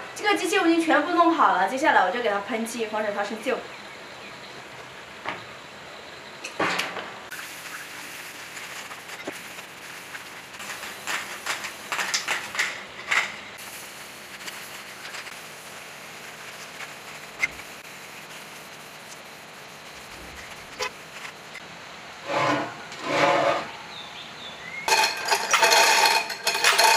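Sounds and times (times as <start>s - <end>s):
steady low hiss: 0.0s - 26.9s
spray paint hisses: 7.3s - 12.8s, 13.5s - 21.6s.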